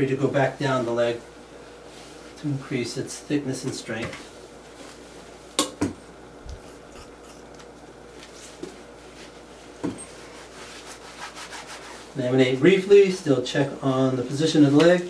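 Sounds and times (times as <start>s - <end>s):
hands rubbing casting tape: 10.2s - 12.1s.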